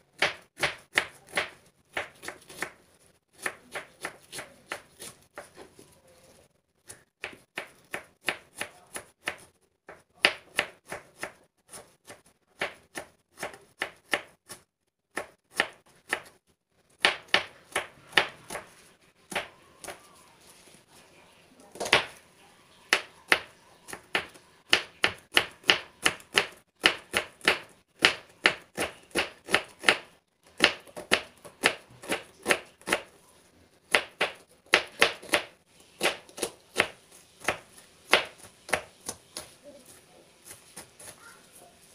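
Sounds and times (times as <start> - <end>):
knife chopping on cutting board: 0.2 - 2.8, 6.9 - 16.4, 33.9 - 41.2.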